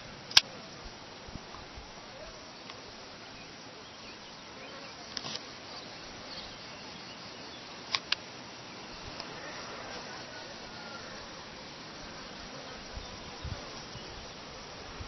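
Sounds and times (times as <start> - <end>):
insects buzzing: 0.0 - 15.0
sharp clicks: 0.3 - 0.5, 7.9 - 8.3.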